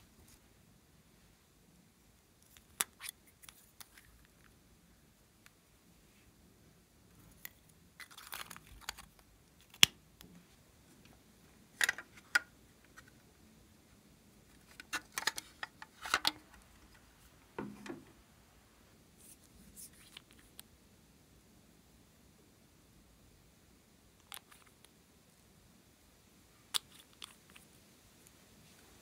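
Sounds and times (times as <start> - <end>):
plastic items clicking and tapping: 14.7 - 16.6.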